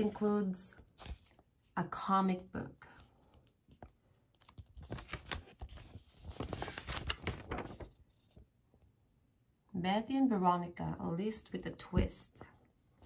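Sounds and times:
paper pages rustling: 0:00.0 - 0:01.5, 0:03.2 - 0:08.5.

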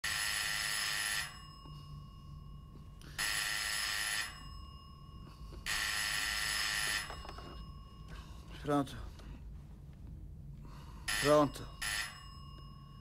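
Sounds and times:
telephone ringing: 0:00.0 - 0:08.1, 0:11.1 - 0:13.0.

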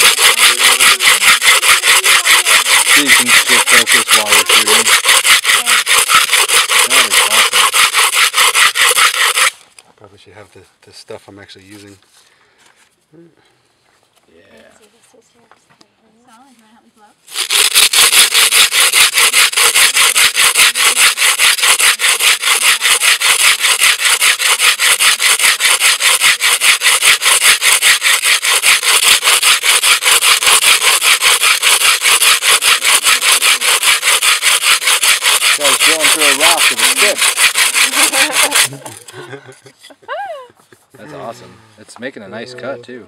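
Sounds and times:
hand drill grinding sand on stone: 0:00.0 - 0:09.8, 0:16.4 - 0:39.2.

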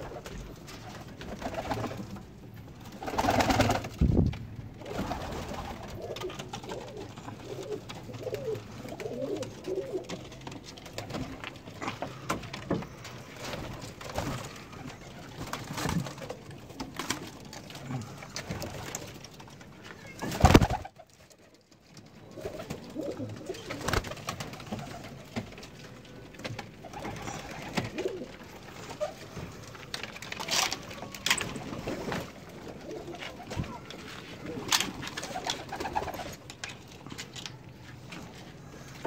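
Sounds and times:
clicks and rustles: 0:00.2 - 0:39.0
pigeons cooing: 0:04.8 - 0:19.2, 0:22.2 - 0:25.4, 0:26.8 - 0:29.8, 0:31.4 - 0:36.4.

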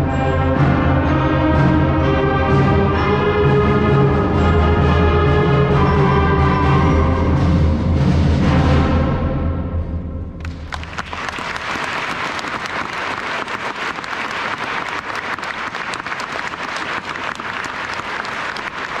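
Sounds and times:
crowd applause: 0:10.4 - 0:19.0.

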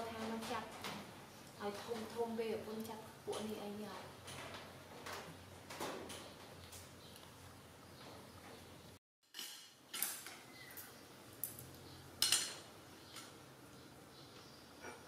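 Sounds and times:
tongs and dishes clinking: 0:09.4 - 0:13.3.

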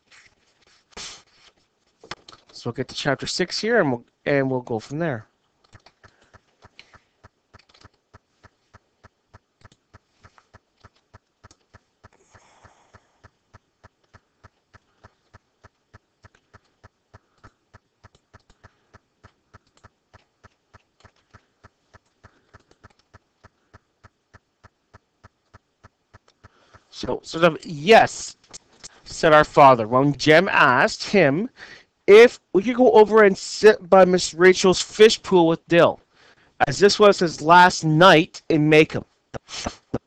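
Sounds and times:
computer key clicks: 0:05.6 - 0:26.8.

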